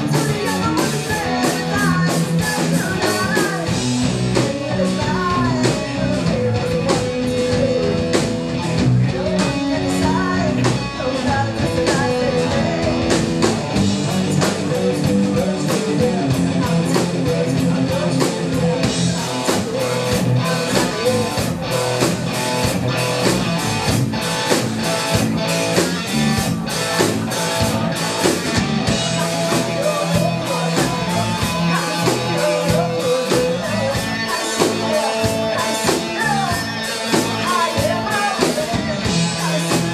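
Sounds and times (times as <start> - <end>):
woman singing into microphone: 0.0 - 3.7, 4.4 - 7.8, 9.1 - 13.1
drum kit: 0.0 - 39.9
electric guitars: 0.0 - 39.9.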